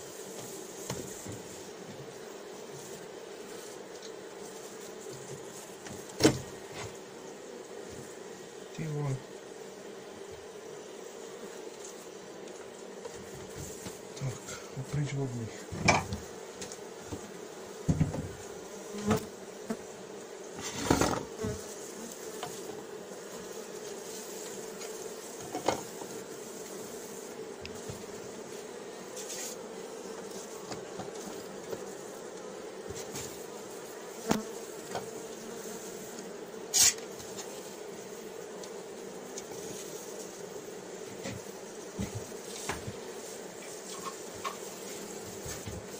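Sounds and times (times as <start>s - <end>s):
bees buzzing: 0.0s - 45.9s
wooden knocks and clatters: 17.9s - 18.4s.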